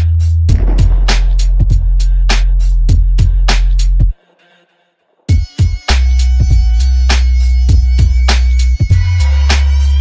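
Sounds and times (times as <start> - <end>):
background music with a beat: 0.0 - 4.2, 5.3 - 10.0
heavy bass drum hits: 0.5 - 4.1.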